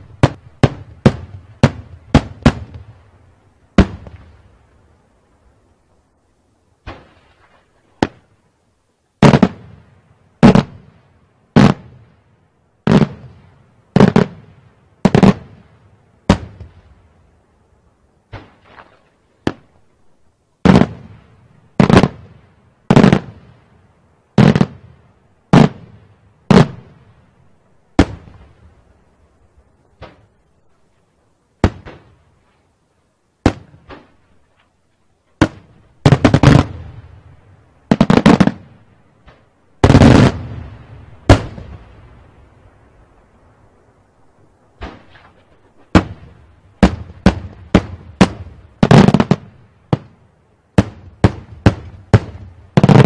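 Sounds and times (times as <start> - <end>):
fireworks bangs with echo: 0.0 - 3.0, 3.8 - 4.4, 9.2 - 9.8, 10.4 - 10.9, 11.6 - 12.0, 12.8 - 15.6, 16.3 - 16.8, 20.6 - 21.2, 21.8 - 22.3, 22.9 - 23.4, 24.4 - 24.9, 25.5 - 27.0, 28.0 - 28.6, 31.6 - 32.2, 33.4 - 34.2, 35.4 - 37.1, 37.9 - 42.2, 44.8 - 50.2, 50.8 - 53.0.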